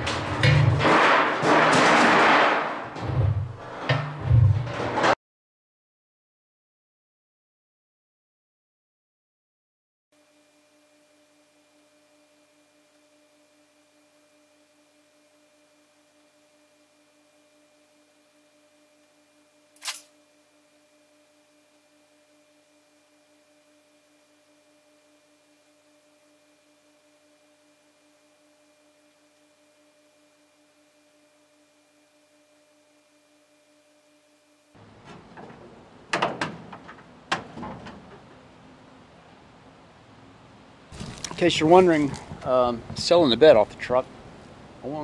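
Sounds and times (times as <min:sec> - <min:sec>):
sharp click: 0:19.8 - 0:20.2.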